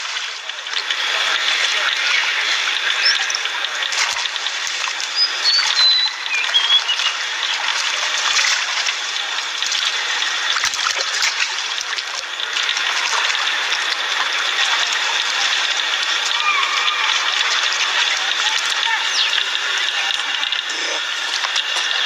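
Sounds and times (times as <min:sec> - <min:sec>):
water splashing and sloshing: 0:00.0 - 0:22.0
high chirps: 0:05.0 - 0:07.6.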